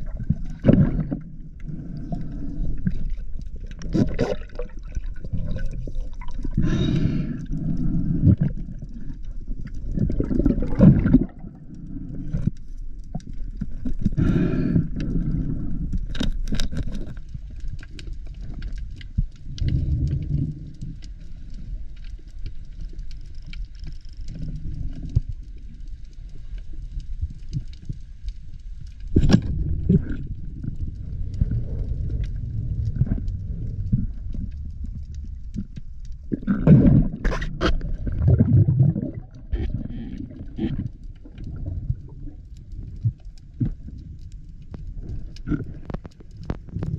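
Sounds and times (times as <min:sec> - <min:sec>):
muffled underwater bubbling: 0:00.0 - 0:16.1, 0:29.0 - 0:46.9.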